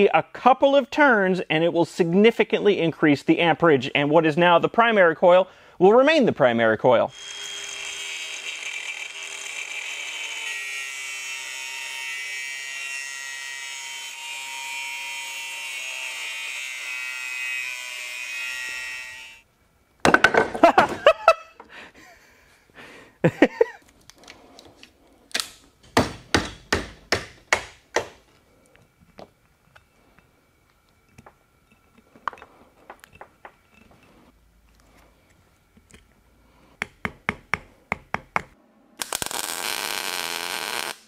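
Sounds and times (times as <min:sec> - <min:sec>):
angle grinder cutting steel: 0:07.1 - 0:19.4.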